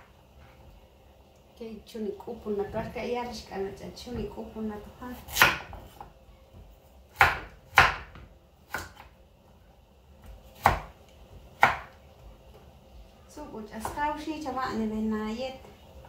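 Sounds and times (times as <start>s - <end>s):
knife chopping on wooden board: 5.2s - 9.1s, 10.2s - 11.0s, 11.6s - 11.9s.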